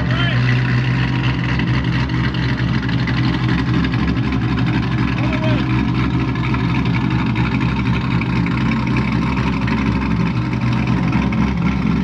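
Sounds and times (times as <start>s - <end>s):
car engine idling: 0.0s - 12.0s.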